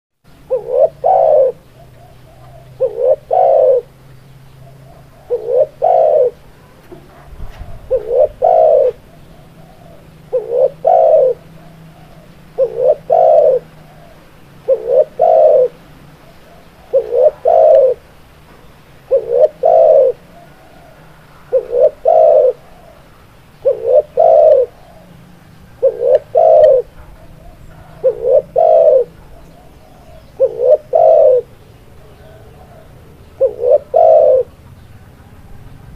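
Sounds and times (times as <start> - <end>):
dove cooing: 0.3 - 35.0.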